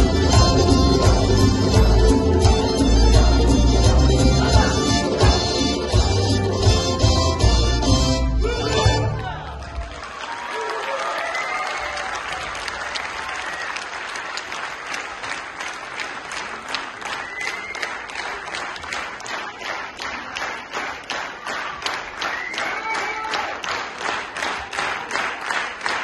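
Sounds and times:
rhythmic clapping in unison: 0.0s - 11.1s, 11.7s - 26.0s
audience applauding: 8.9s - 26.0s.

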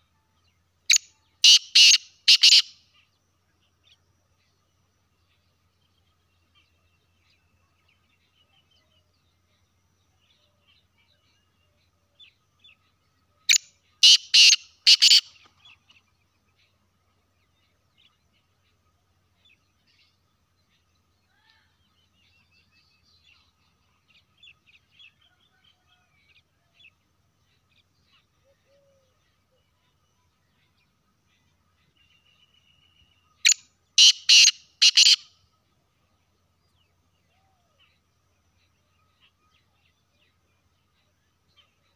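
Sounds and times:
small birds twittering: 0.0s - 41.9s
bird calling harshly: 1.4s - 2.7s, 14.0s - 15.3s, 34.0s - 35.3s.

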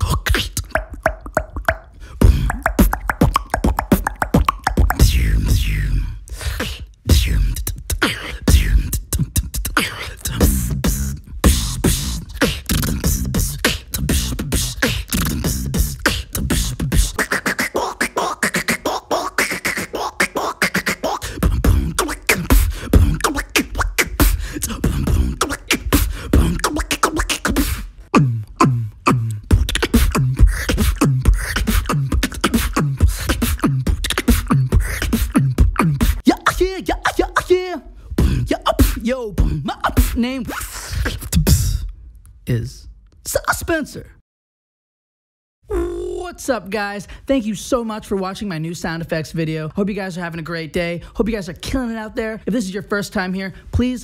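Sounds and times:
beatboxing clicks and snare hits: 0.0s - 37.6s, 38.2s - 42.4s
deep vocal bass: 0.0s - 43.0s, 45.7s - 46.5s
humming synth-like vocal tones: 2.2s - 6.2s, 7.1s - 37.4s, 45.7s - 46.3s.

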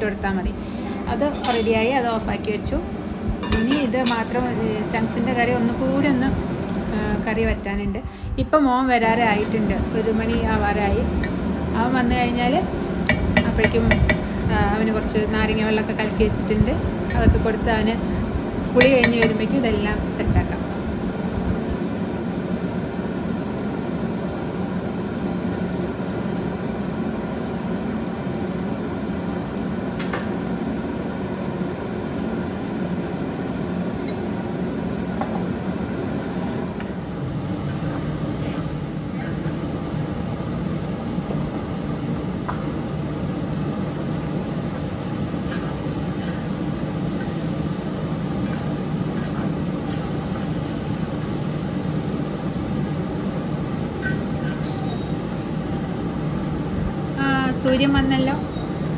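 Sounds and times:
spatula clinking in a wok: 1.3s - 1.9s, 3.4s - 4.3s.

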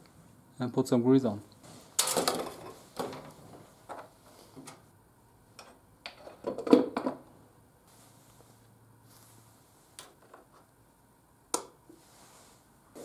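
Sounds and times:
metal knocks and clatter: 2.0s - 3.4s.

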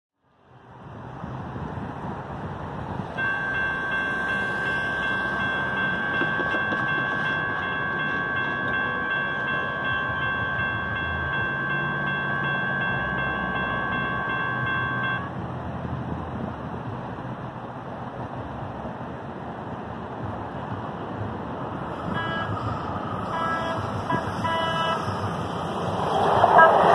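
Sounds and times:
railroad crossing bells ringing: 3.0s - 15.4s, 21.7s - 26.9s.

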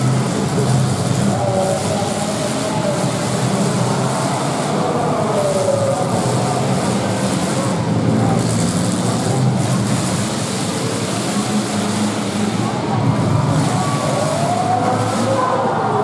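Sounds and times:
car engines revving together: 0.0s - 16.0s.

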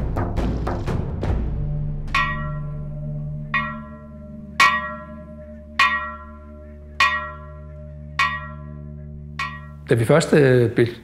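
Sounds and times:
low steady hum: 2.1s - 10.0s
church bell tolling: 2.2s - 10.2s.

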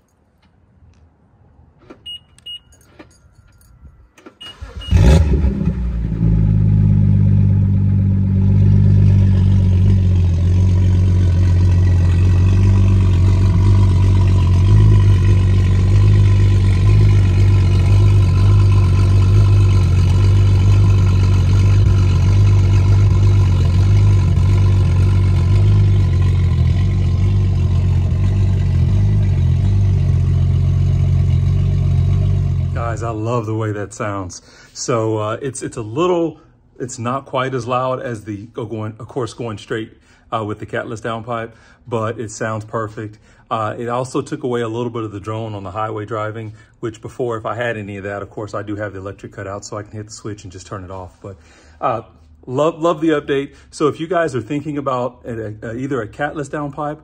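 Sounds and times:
car engine idling: 4.5s - 33.3s.

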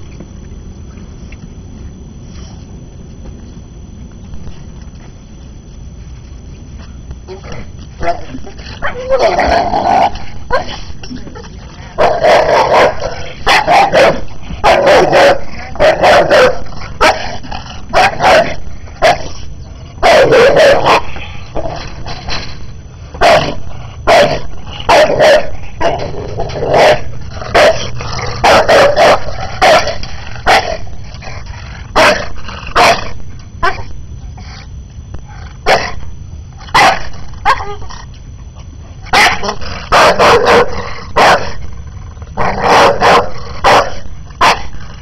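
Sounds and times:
dog barking: 12.7s - 17.2s, 24.1s - 25.5s, 36.8s - 37.8s, 39.2s - 41.5s, 42.6s - 44.7s.

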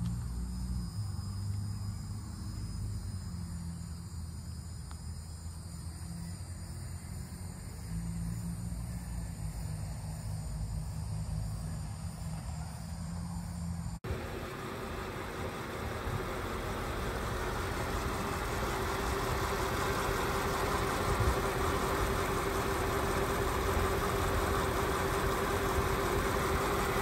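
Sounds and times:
high insect sound: 0.0s - 27.0s
car engine idling: 14.0s - 27.0s.

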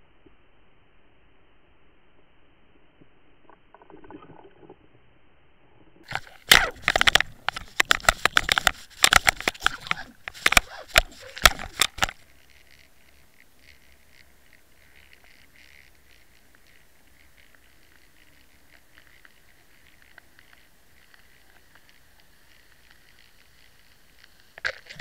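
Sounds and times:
fish thrashing underwater: 3.5s - 4.9s, 6.0s - 21.8s.

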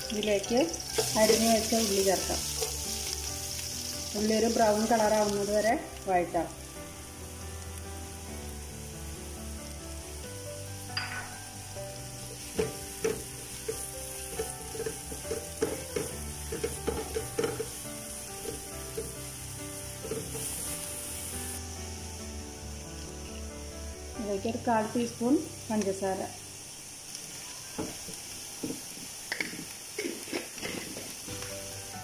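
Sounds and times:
onions sizzling in hot oil: 0.0s - 32.0s
spoon scraping a pan: 0.9s - 3.2s, 12.6s - 17.8s, 20.0s - 20.7s, 29.3s - 31.3s.

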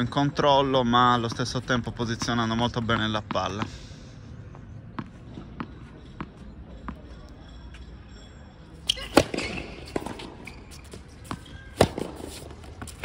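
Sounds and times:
tennis ball bouncing on hard court: 1.0s - 3.7s, 4.5s - 7.1s, 8.9s - 13.0s
racket striking ball: 8.9s - 13.0s.

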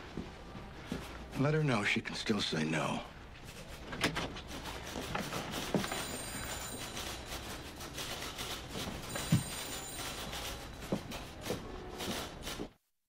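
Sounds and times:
office room tone: 0.0s - 12.9s
telephone ringing: 5.8s - 7.6s, 9.0s - 11.0s.

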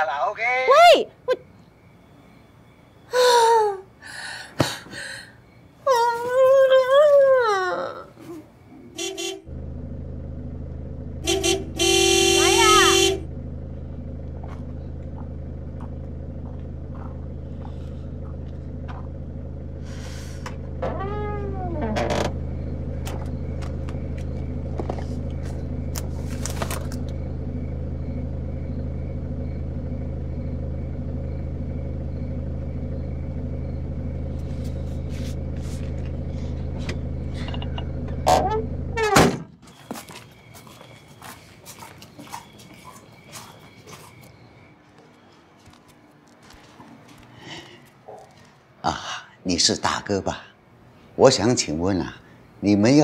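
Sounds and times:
car engine idling: 9.1s - 39.2s
creak falling and rising in pitch: 19.8s - 27.1s.

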